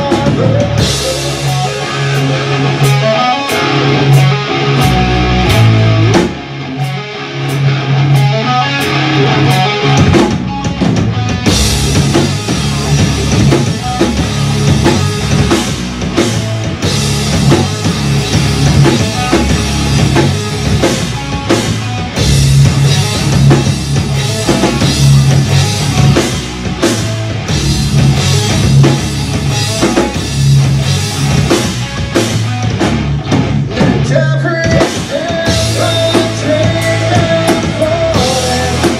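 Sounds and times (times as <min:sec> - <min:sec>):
bass guitar: 0:00.0 - 0:38.9
drum kit with cymbals: 0:00.0 - 0:38.9
electric guitar: 0:00.0 - 0:38.9.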